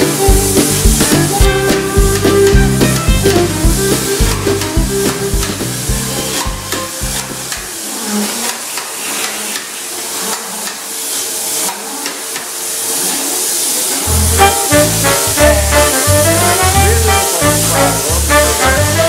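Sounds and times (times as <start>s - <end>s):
music with beat and bass: 0.0s - 7.5s, 14.1s - 19.0s
steady hiss: 0.0s - 19.0s.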